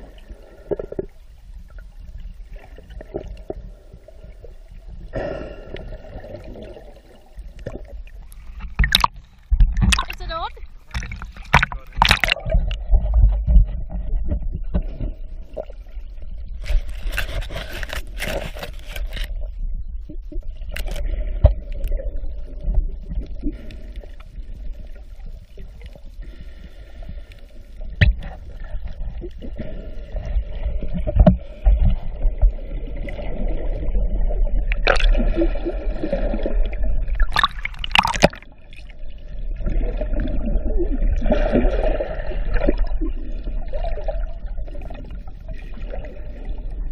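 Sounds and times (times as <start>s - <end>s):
bubbling: 0.0s - 27.2s, 27.8s - 46.9s
underwater rumble of moving water: 0.0s - 46.9s
clicks and gurgling: 7.5s - 15.2s, 16.6s - 19.5s, 20.6s - 22.0s, 34.6s - 35.5s, 36.5s - 38.9s.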